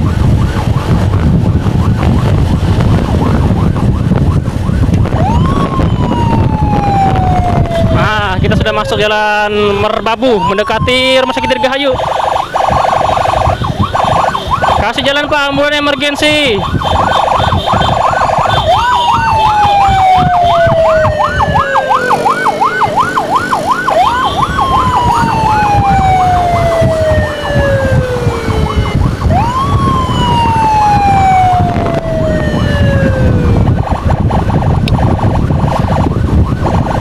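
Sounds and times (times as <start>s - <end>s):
engine and wind rumble: 0.0s - 37.0s
siren wail: 0.0s - 37.0s
siren yelp: 0.0s - 37.0s.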